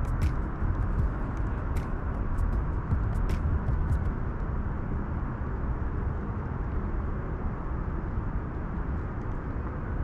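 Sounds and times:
steady low rumbling: 0.0 - 5.0.

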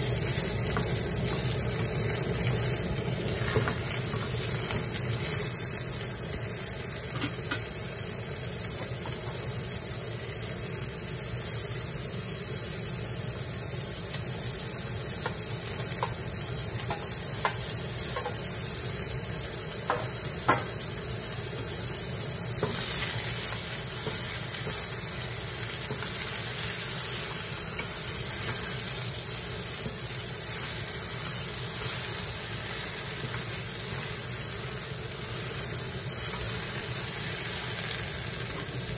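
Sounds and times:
vegetables sizzling in a hot pan: 0.0 - 38.9
spatula knocking against pan: 19.9 - 20.7.

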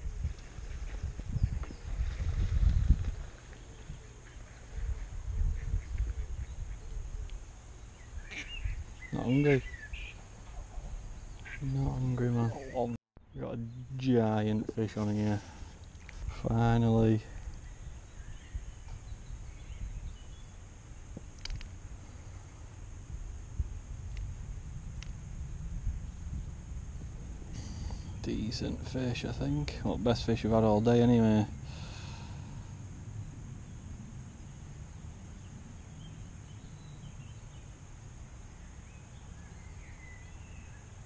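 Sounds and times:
low uneven rumble: 0.0 - 40.3
faint high hiss: 0.0 - 41.0
faint clicks: 21.4 - 21.7.

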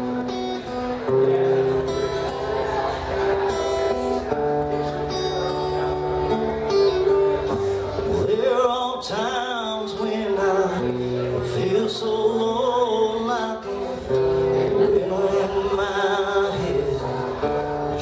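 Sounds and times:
acoustic guitar strumming chords: 0.0 - 18.0
man singing: 8.0 - 18.0.

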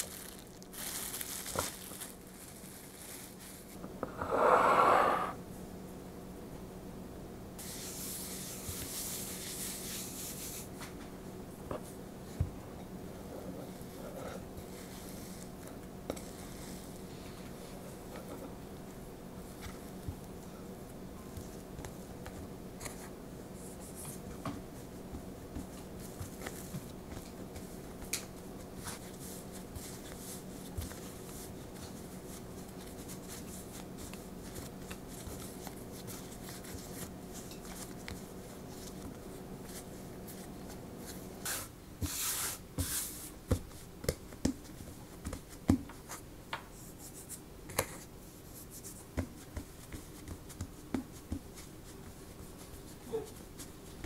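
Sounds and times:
steady low hum: 0.0 - 54.0
hands kneading dough: 7.6 - 11.0, 11.6 - 54.0
dough taps and thumps: 43.4 - 46.7, 49.1 - 51.6.

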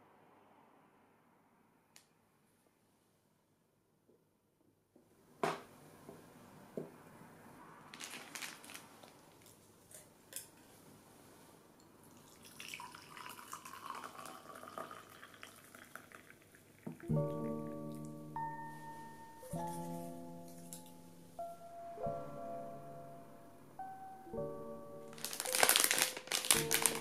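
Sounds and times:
hot water pouring into glass cup: 12.2 - 17.1.

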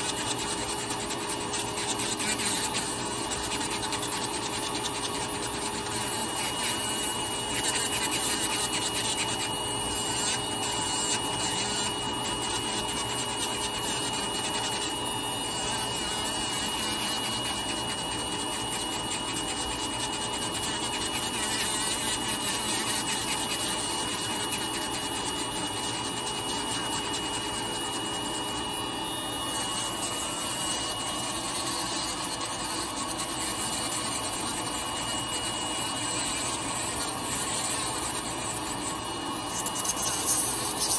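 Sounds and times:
burr grinding toenail: 0.0 - 40.9
nail drill whining: 0.0 - 40.9.

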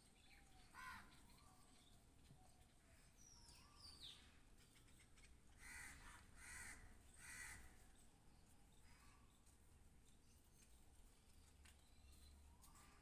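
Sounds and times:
faint crow cawing: 0.7 - 1.2, 5.5 - 7.9.

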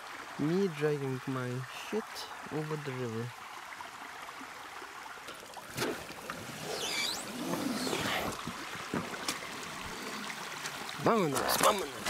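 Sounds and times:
water running: 5.2 - 12.0
kayak hull scraping on sticks: 5.7 - 9.4.

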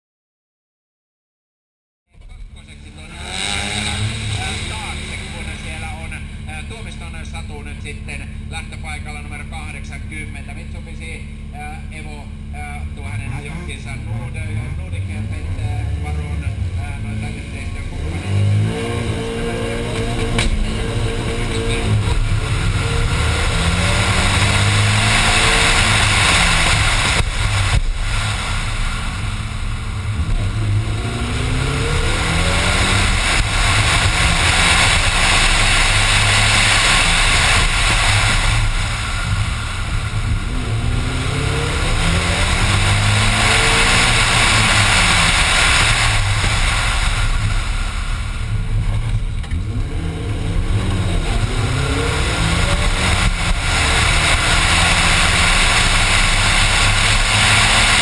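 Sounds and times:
race car engine accelerating: 2.2 - 58.0.

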